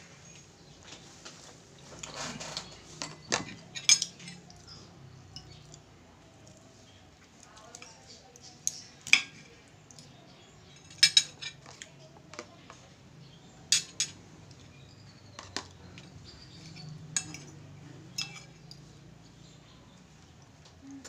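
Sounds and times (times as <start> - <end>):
cutlery clinking on a plate: 2.0 - 4.5, 10.7 - 12.8, 13.7 - 14.2, 15.3 - 18.8.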